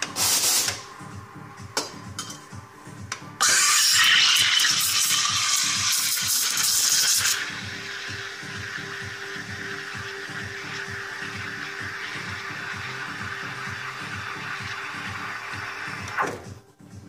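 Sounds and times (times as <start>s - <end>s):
steam wand hissing in milk: 0.1s - 0.8s, 3.4s - 16.0s.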